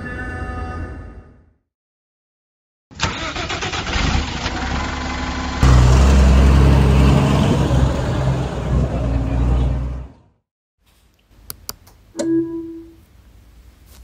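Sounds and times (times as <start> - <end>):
bus engine rumbling: 3.0 - 10.4.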